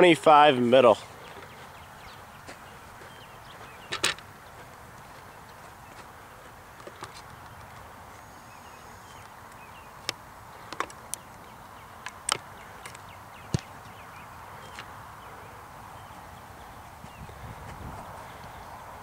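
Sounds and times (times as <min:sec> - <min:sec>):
foot kicking ball thump: 0:13.5 - 0:13.8.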